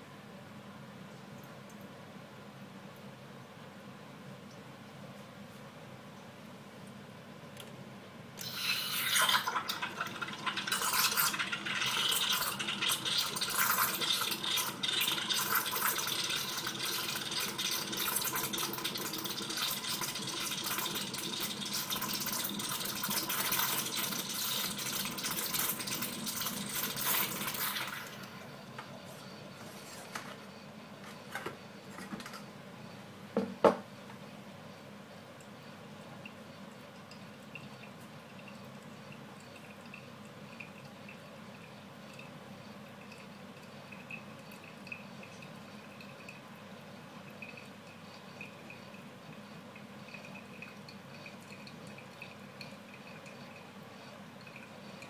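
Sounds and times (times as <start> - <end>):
steam wand frothing milk: 8.4 - 30.4.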